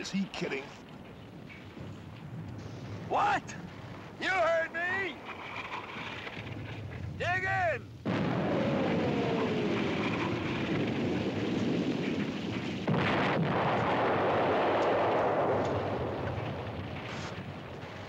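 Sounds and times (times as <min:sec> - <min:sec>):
artillery shells exploding: 0:01.1 - 0:18.0.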